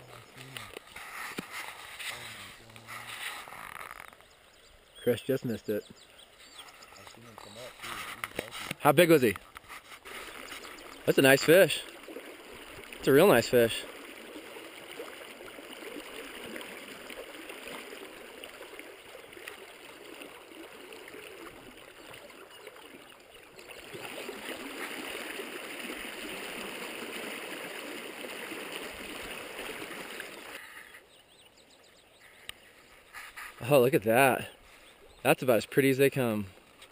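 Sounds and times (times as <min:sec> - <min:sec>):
creek water rushing and gurgling: 0:00.0 - 0:36.9.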